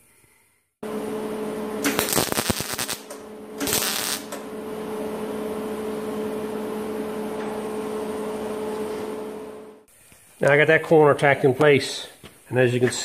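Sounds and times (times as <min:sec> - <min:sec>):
steady hum: 0:00.8 - 0:10.4
welding arc crackling: 0:01.8 - 0:04.4.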